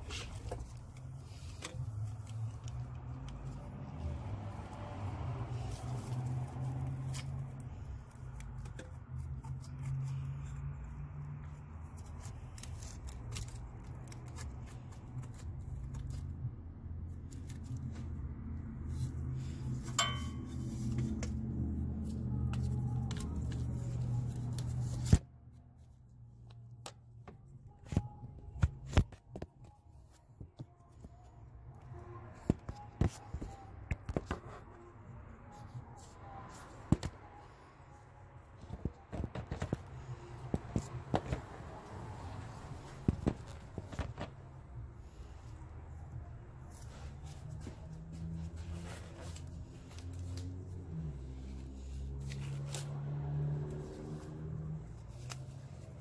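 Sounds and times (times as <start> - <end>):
metal tools clicking and tapping: 19.8 - 20.6.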